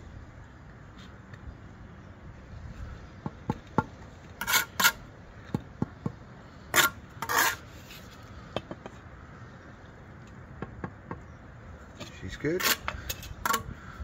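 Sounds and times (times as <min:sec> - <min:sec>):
trowel tapping bricks: 0:03.2 - 0:06.2
trowel scraping over brick: 0:04.4 - 0:05.1, 0:06.6 - 0:08.2, 0:12.5 - 0:13.7.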